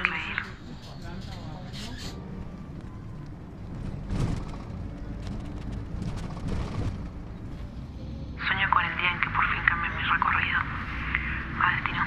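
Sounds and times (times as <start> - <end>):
bus rumbling inside cabin: 0.0 - 12.0
knocks and rattles: 3.8 - 7.3.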